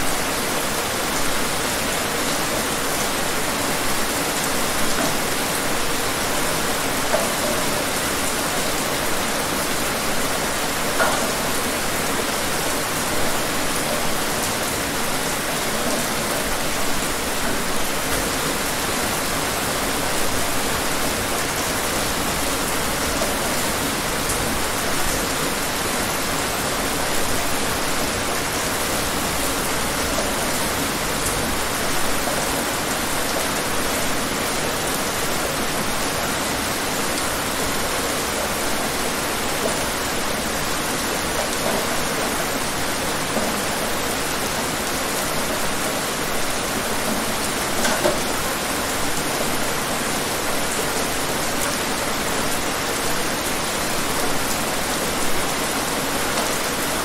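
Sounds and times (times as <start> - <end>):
patter of raindrops: 0.0 - 57.0
steady rain hiss: 0.0 - 57.0.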